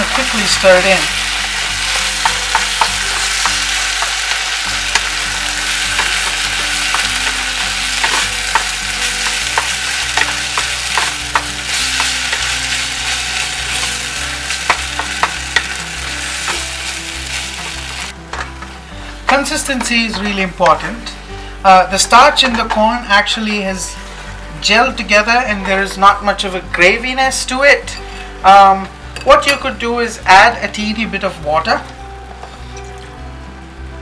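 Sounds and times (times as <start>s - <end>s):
food sizzling in frying pan: 0.0s - 25.7s
spatula clicking on pan: 9.5s - 12.1s.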